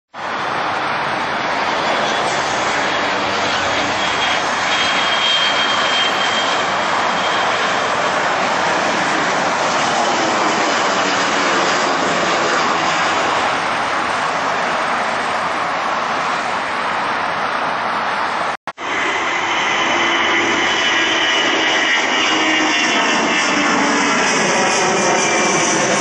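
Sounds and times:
jet engines roaring: 0:00.2 - 0:26.0
faint high whine: 0:18.8 - 0:26.0.

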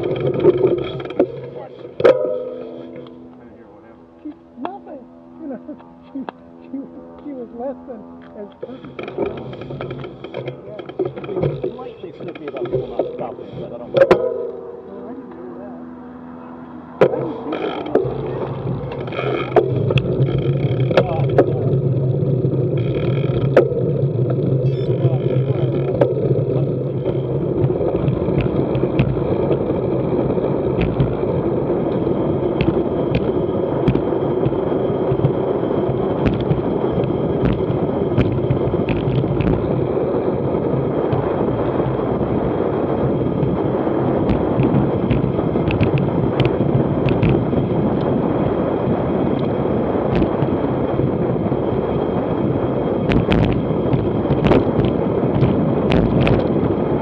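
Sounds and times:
sharp clicks and knocks: 0:00.0 - 0:03.2, 0:08.2 - 0:14.6, 0:17.0 - 0:21.7, 0:22.8 - 0:29.8, 0:30.7 - 0:31.2, 0:31.9 - 0:39.9, 0:44.2 - 0:48.1, 0:49.3 - 0:50.6, 0:53.0 - 0:56.7
bicycle tyre roar on asphalt: 0:00.0 - 0:57.0
wind rushing over microphone: 0:00.0 - 0:57.0.

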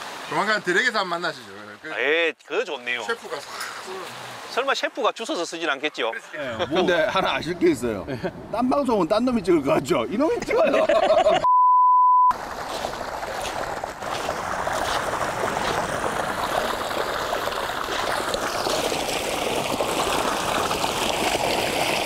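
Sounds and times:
running water: 0:00.0 - 0:07.8, 0:12.3 - 0:22.0
loud beep: 0:11.4 - 0:12.3.

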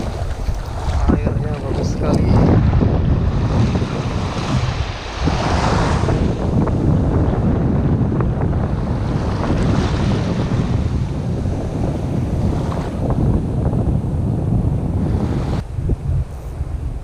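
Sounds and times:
small waves washing: 0:00.0 - 0:06.9
wind buffeting microphone: 0:00.0 - 0:17.0.

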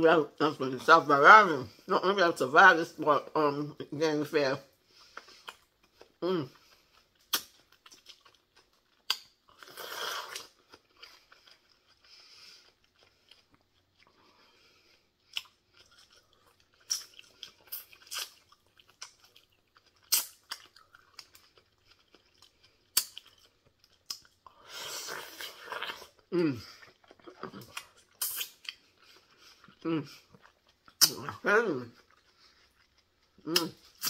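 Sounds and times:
soft wet chewing: 0:04.6 - 0:34.0
cucumber crunching bites: 0:07.2 - 0:11.2, 0:22.9 - 0:24.3.

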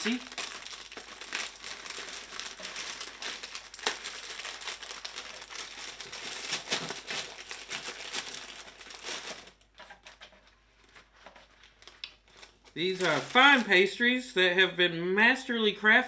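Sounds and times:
plastic wrappers crinkling: 0:00.0 - 0:14.2.

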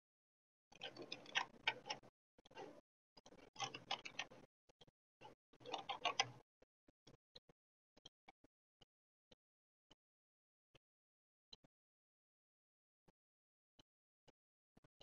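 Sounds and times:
computer mouse and keyboard clicking: 0:00.8 - 0:04.5, 0:05.2 - 0:06.4.

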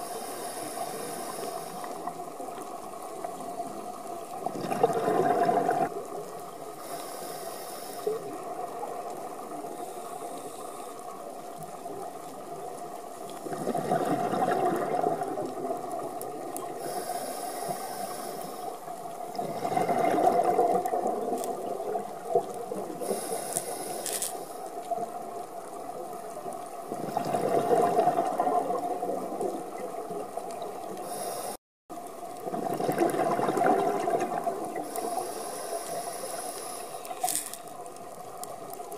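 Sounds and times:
hissing regulator inhales: 0:00.0 - 0:02.1, 0:06.8 - 0:08.3, 0:16.7 - 0:18.8, 0:23.0 - 0:24.7, 0:31.0 - 0:31.6, 0:34.8 - 0:37.5
bubbling exhale underwater: 0:04.5 - 0:06.0, 0:13.4 - 0:16.0, 0:19.3 - 0:22.5, 0:26.9 - 0:29.8, 0:32.4 - 0:35.0.

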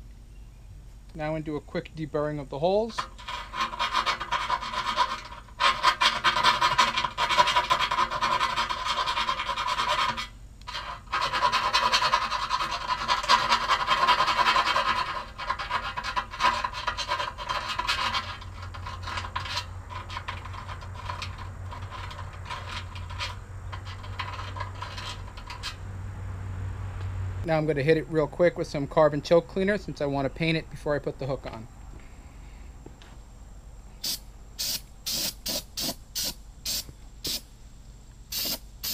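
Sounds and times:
hand file scraping metal: 0:03.0 - 0:25.8.

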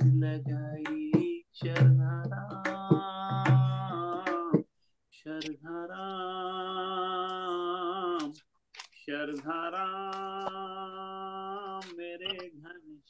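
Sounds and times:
man singing devotional song: 0:00.0 - 0:13.0.

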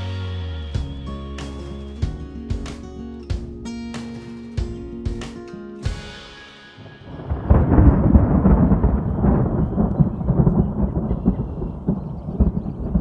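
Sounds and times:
thunder rumbling: 0:06.8 - 0:13.0.

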